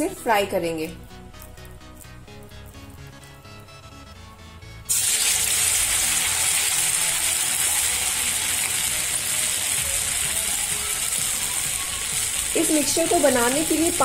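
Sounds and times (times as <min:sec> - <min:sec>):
batter deep-frying in oil: 0:04.8 - 0:14.0.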